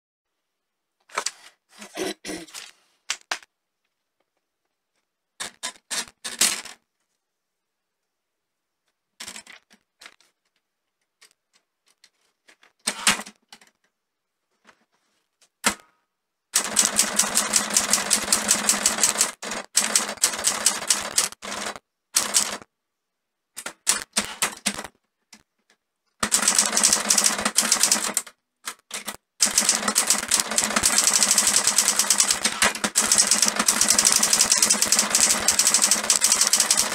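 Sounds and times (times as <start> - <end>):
rapid typewriter typing: 16.6 - 22.7, 23.6 - 24.9, 26.2 - 36.9.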